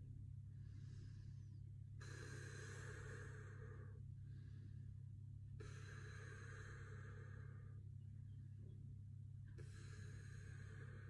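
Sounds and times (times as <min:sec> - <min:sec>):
steady low hum: 0:00.0 - 0:11.0
man breathing hard: 0:00.5 - 0:07.8, 0:09.6 - 0:11.0.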